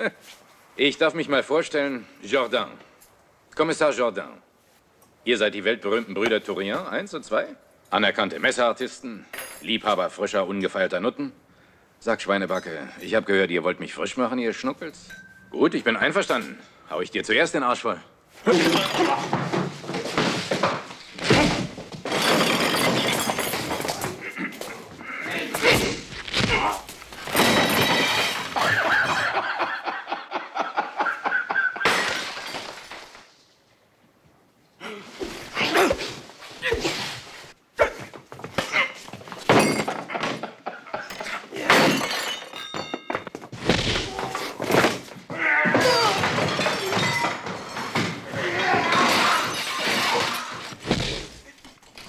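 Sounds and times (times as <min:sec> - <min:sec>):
glass breaking and clattering: 0:18.5 - 0:19.7, 0:21.2 - 0:24.3, 0:27.2 - 0:29.5, 0:31.8 - 0:33.3, 0:38.6 - 0:45.0, 0:45.7 - 0:50.8.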